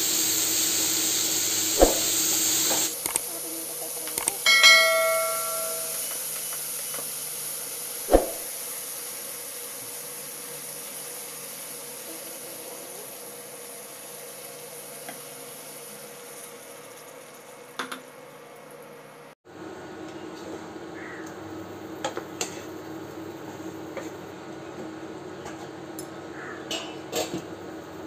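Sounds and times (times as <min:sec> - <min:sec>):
vegetables sizzling in hot oil: 0:00.0 - 0:19.4
sharp knock: 0:01.8 - 0:02.1, 0:08.1 - 0:08.4
steel bowl clinking against pan: 0:04.4 - 0:06.2.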